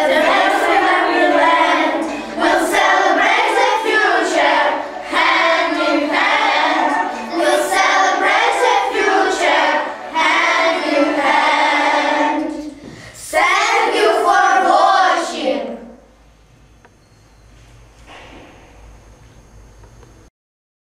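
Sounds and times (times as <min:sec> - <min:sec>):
children singing together: 0:00.0 - 0:16.0.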